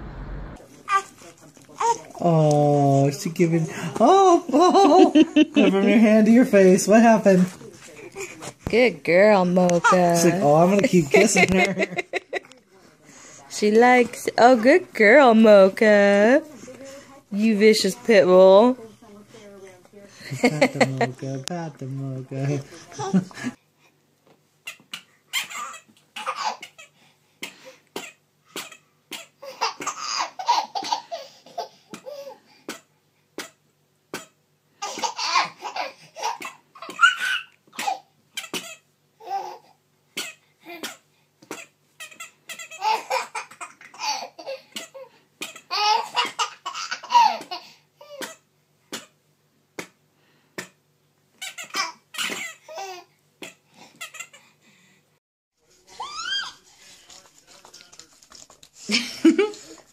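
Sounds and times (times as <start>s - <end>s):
toddler laughing: 45.7s - 48.2s.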